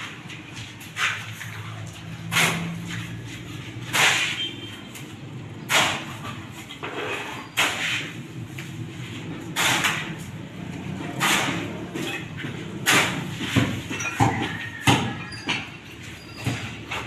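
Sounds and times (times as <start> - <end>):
trowel scraping wet mortar: 0.6 - 4.9, 5.6 - 14.6.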